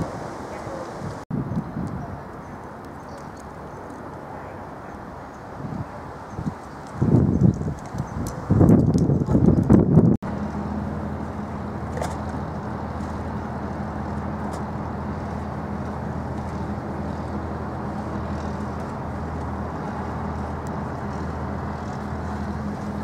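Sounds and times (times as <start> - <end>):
wind and water noise: 0.0 - 23.0
ship engines droning: 10.2 - 23.0.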